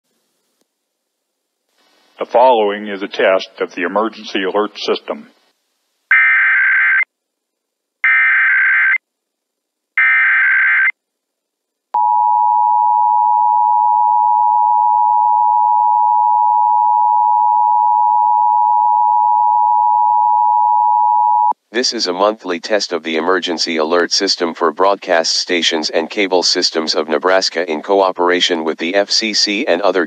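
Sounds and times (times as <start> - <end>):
screechy digital data tones: 6.1 - 7.1, 8.0 - 9.0, 10.0 - 10.9.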